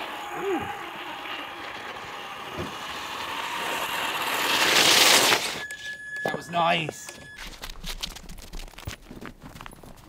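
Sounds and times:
tyres on slush: 0.0s - 5.7s
toy car motor whine: 0.0s - 7.8s.

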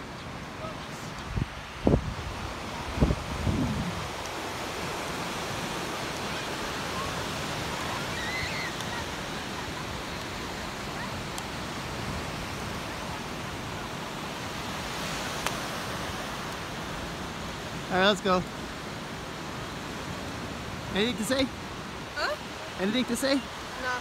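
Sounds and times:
ocean surf breaking on sand: 0.0s - 24.0s
faint distant calls: 5.8s - 11.9s.

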